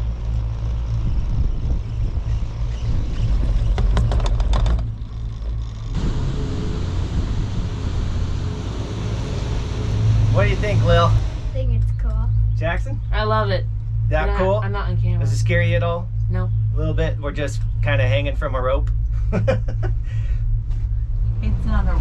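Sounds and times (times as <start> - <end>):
wind on microphone: 0.0 - 5.2, 5.9 - 12.7
cable car low rumble: 0.0 - 22.0
rattling clatter of sheave wheels: 2.6 - 8.7.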